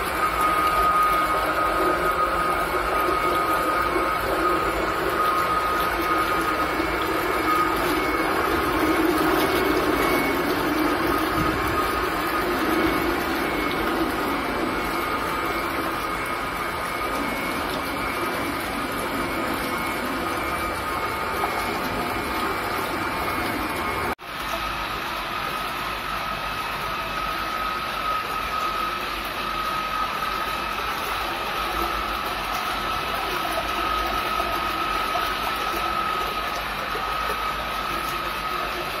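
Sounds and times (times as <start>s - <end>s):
electric motor whine: 0.0s - 24.2s
liquid churning in bucket: 0.0s - 39.0s.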